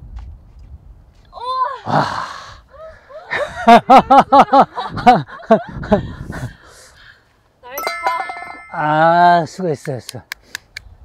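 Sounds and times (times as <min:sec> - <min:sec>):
people laughing: 0:03.3 - 0:06.2.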